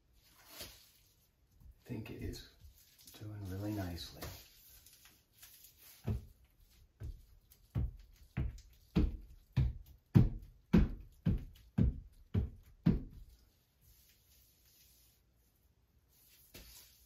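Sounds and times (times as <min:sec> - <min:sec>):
rubber float thumping on tiles: 0:05.9 - 0:13.4.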